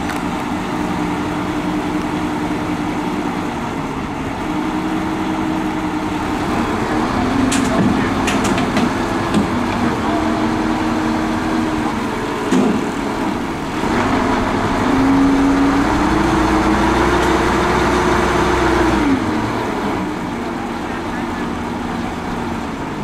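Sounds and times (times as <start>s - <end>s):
vehicle engine revving: 4.4s - 22.8s.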